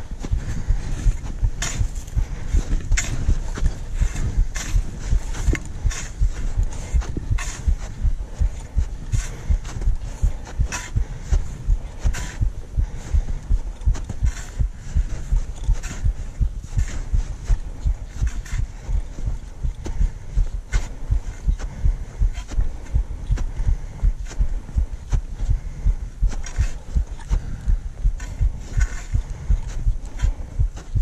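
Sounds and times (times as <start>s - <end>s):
footstep crunch: 0.0s - 31.0s
footsteps low thumps: 0.0s - 31.0s.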